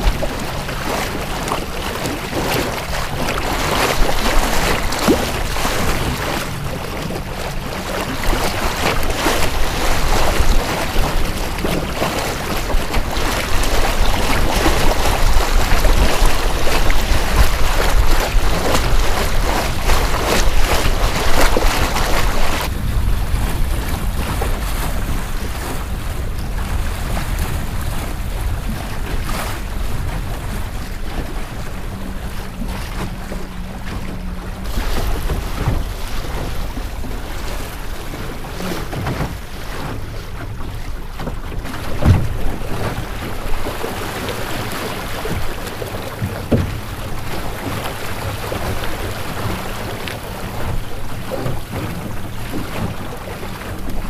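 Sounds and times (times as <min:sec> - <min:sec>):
water rushing along boat hull: 0:00.0 - 0:54.0
wind buffeting microphone: 0:00.0 - 0:54.0.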